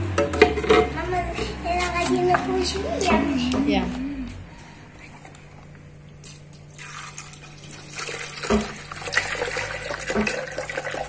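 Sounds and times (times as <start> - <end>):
milk pouring into a jug: 6.6 - 11.0.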